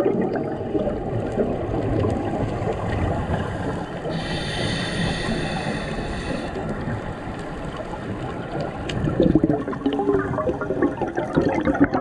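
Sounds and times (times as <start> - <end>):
air bubbles gurgling underwater: 0.0 - 12.0
high hiss with whistling tones: 4.1 - 6.6.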